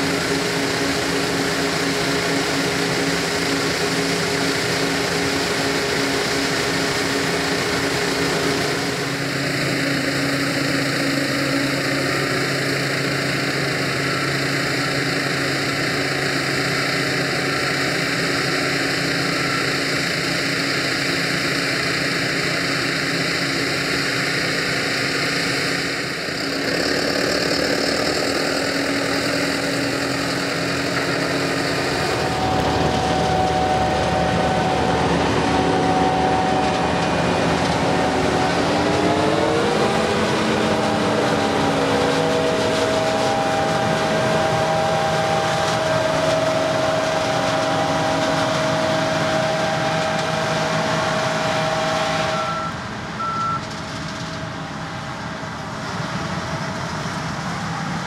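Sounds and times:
combine harvester running: 0:00.0 - 0:58.0.

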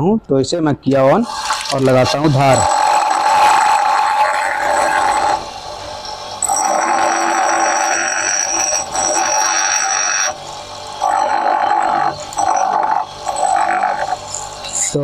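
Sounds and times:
bench grinder grinding metal: 0:02.0 - 0:15.0.

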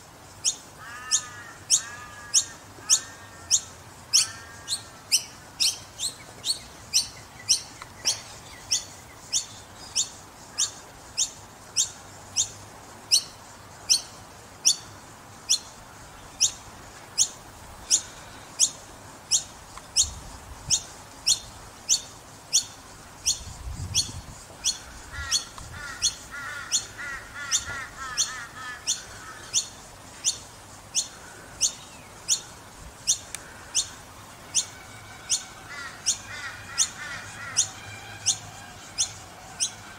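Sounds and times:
fledgling bird calling: 0:00.4 - 0:14.9, 0:17.2 - 0:39.9
bird chattering: 0:17.2 - 0:34.7.

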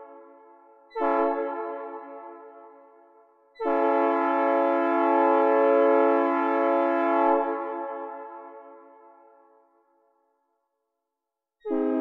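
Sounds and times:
synthesized train horn blasts: 0:00.9 - 0:02.5, 0:03.6 - 0:08.7, 0:11.7 - 0:12.0.

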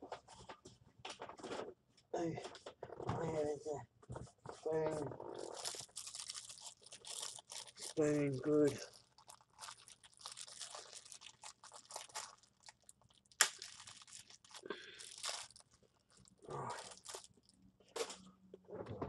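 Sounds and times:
food packaging crunching and crinkling: 0:04.7 - 0:18.2.

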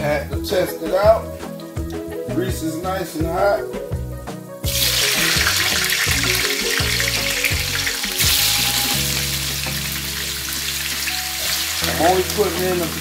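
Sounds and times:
potatoes sizzling in hot oil: 0:04.7 - 0:13.0.

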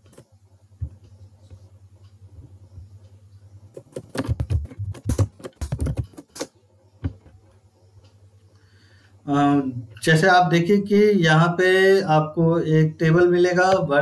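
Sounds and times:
typing on computer keyboard: 0:03.7 - 0:06.5.

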